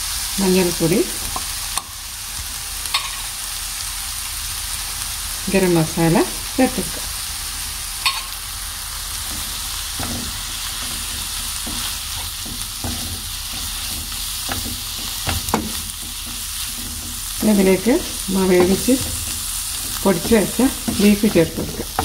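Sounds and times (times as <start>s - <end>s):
onions sizzling in oil: 0.0s - 22.0s
wooden spatula scraping a pan: 9.2s - 22.0s.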